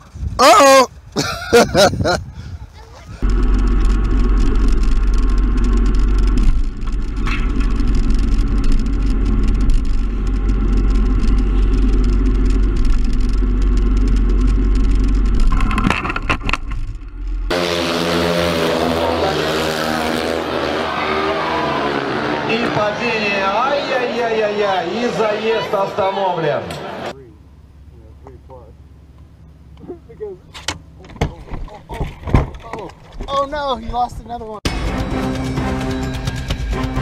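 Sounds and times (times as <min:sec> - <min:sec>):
wind buffeting microphone: 0:00.0 - 0:15.6
motorcycle engine running: 0:03.2 - 0:22.9, 0:34.7 - 0:37.0.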